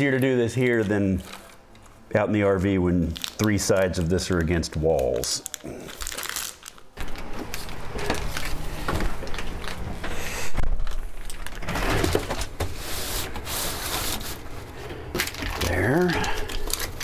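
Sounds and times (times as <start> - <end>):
mat rustling and rubbing: 11.7 - 14.8.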